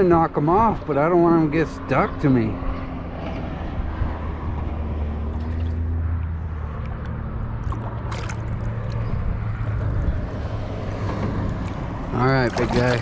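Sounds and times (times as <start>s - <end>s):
low engine drone: 1.0s - 13.0s
water sloshing: 5.2s - 13.0s
water splash: 5.3s - 13.0s.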